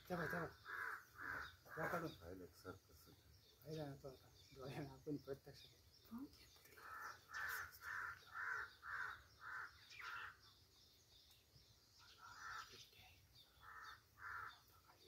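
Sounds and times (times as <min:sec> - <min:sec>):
crow cawing: 0:00.1 - 0:02.3, 0:06.8 - 0:10.5, 0:12.2 - 0:12.8, 0:13.6 - 0:14.7.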